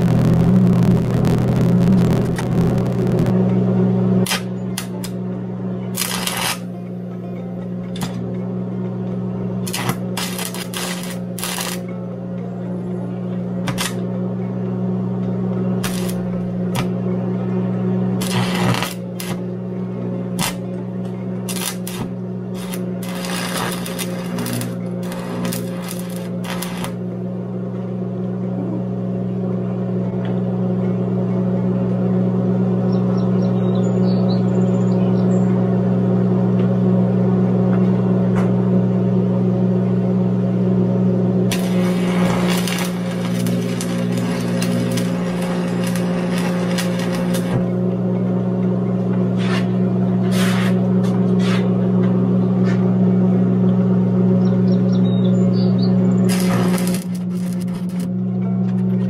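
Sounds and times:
welding arc crackling: 0:00.0 - 0:03.5, 0:04.2 - 0:05.3, 0:05.9 - 0:06.7, 0:09.6 - 0:11.9, 0:13.6 - 0:14.1, 0:15.8 - 0:17.0, 0:18.1 - 0:19.6, 0:20.3 - 0:27.2, 0:41.5 - 0:47.9, 0:56.1 - 0:58.2
steady electrical hum: 0:00.0 - 0:59.0.

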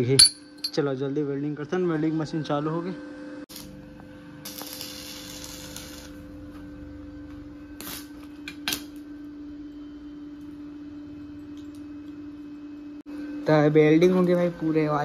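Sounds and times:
steady low hum: 0:00.0 - 0:15.0
welding arc crackling: 0:03.5 - 0:06.5, 0:07.7 - 0:09.1.

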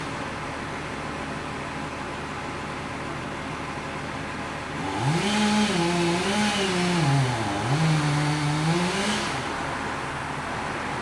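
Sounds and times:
chainsaw revving: 0:04.8 - 0:09.6.

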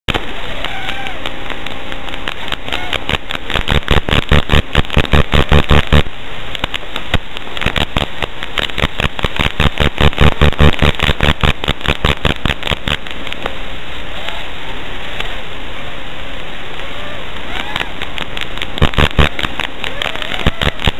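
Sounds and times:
quadcopter motors buzzing: 0:00.1 - 0:06.1, 0:16.7 - 0:20.9.

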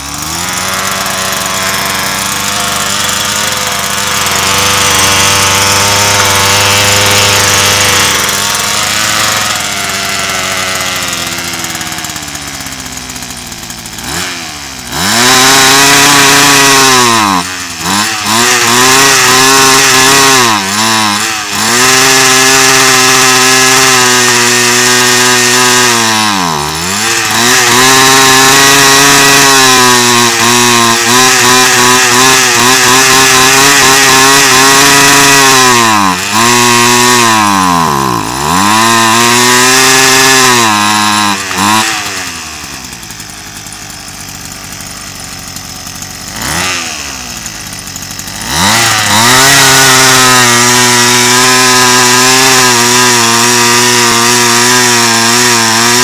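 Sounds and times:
brush cutter engine revving: 0:00.0 - 0:56.0.

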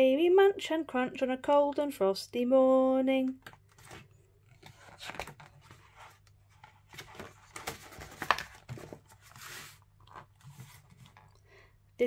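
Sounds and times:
paper pages turning: 0:03.4 - 0:11.4.

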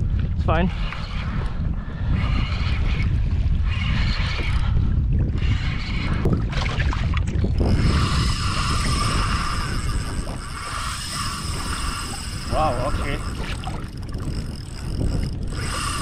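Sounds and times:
wind buffeting microphone: 0:00.0 - 0:16.0
water splashing around kayak: 0:02.8 - 0:16.0
steady high whirring: 0:07.4 - 0:16.0.

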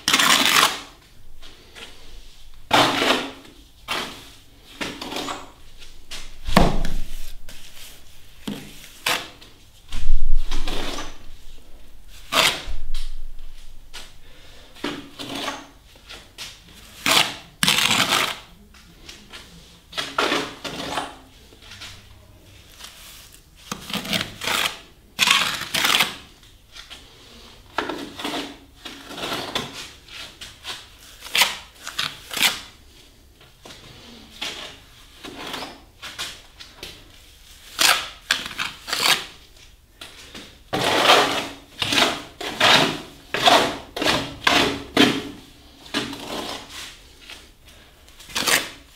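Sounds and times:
trowel scraping and slapping plaster: 0:00.0 - 0:01.0, 0:02.7 - 0:05.6, 0:14.8 - 0:15.8, 0:16.8 - 0:18.5, 0:20.0 - 0:21.2, 0:23.7 - 0:26.3, 0:27.8 - 0:32.7, 0:37.6 - 0:39.5, 0:40.4 - 0:47.0, 0:48.2 - 0:48.9.

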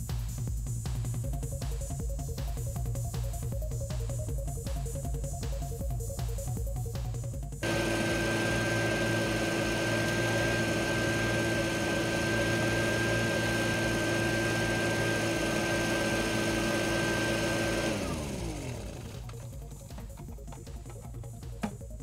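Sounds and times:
small gas engine running: 0:07.6 - 0:22.0.

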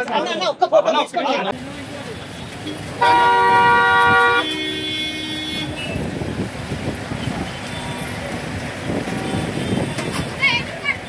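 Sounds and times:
crowd noise: 0:00.0 - 0:11.0
car horn: 0:02.6 - 0:06.0, 0:09.1 - 0:10.3.

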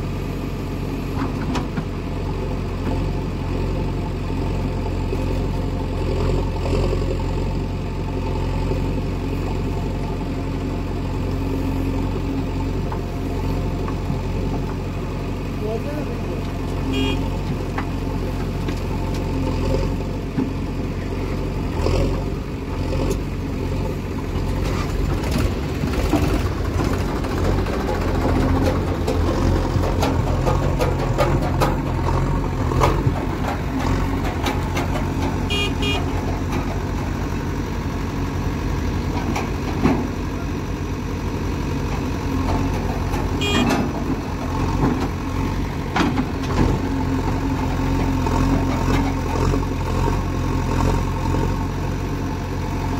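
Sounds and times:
backhoe diesel engine under load: 0:00.0 - 0:52.9
falling earth: 0:16.4 - 0:52.9.

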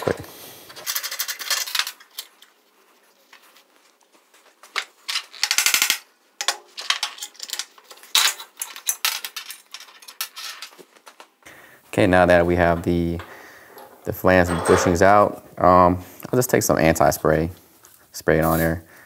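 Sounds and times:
metal clinks and clatter: 0:13.2 - 0:15.1.

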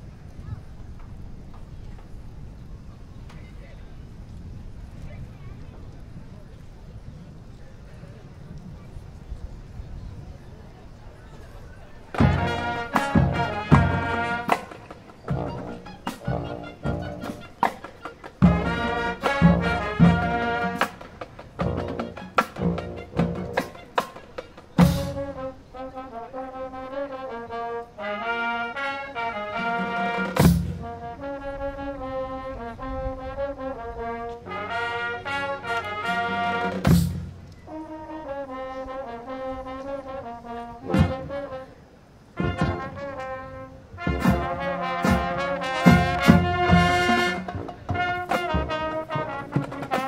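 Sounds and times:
marching band playing: 0:12.1 - 0:50.0
brass sustained chords: 0:12.2 - 0:50.0.

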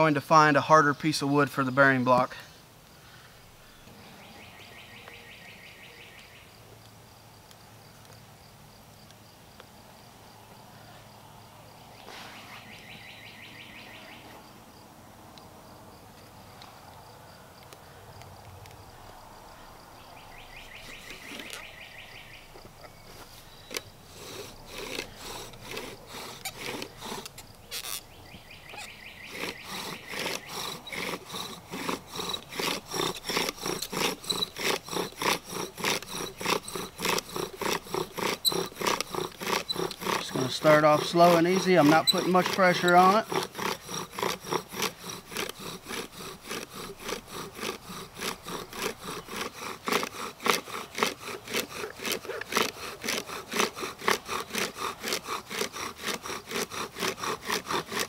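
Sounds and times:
insect buzzing: 0:07.1 - 0:58.0
bow drill spindle rubbing: 0:20.5 - 0:58.0.

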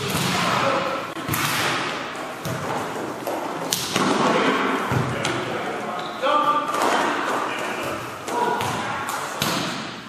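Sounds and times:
hands slapping volleyball: 0:01.2 - 0:04.3, 0:08.2 - 0:09.9.

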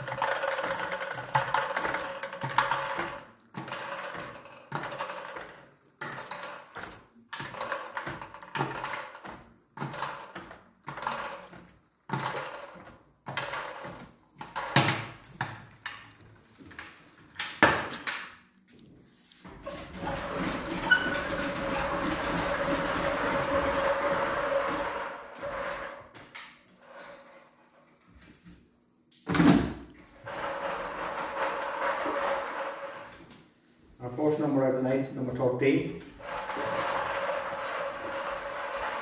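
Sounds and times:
plastic balls clicking and clattering: 0:00.0 - 0:18.5.

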